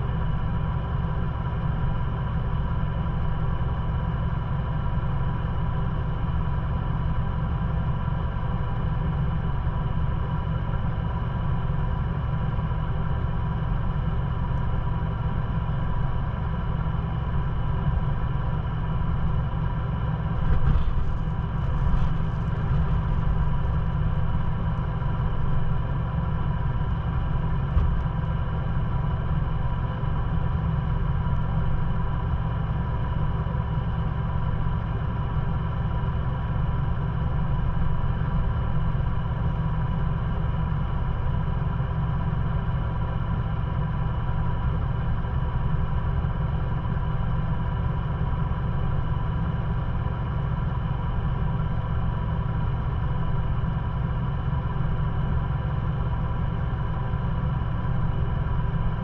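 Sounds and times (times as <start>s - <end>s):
truck engine idling: 7.4s - 33.6s.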